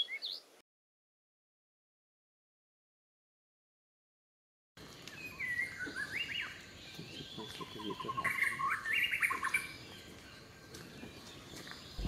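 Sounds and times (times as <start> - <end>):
bird singing whistled phrases: 0.0 - 0.4, 5.2 - 6.6, 7.3 - 9.8
bird trill: 5.0 - 12.0.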